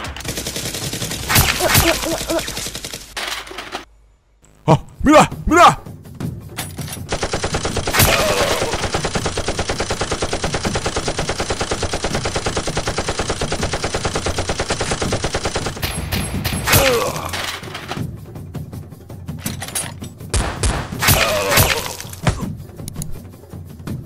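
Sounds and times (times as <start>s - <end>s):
machine-gun fire: 0.0s - 3.2s, 7.1s - 15.9s.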